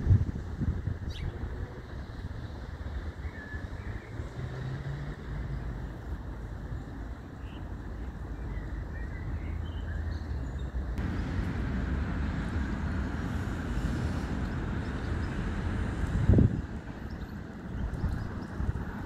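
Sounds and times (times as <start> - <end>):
low outdoor rumble: 11.0 - 19.0.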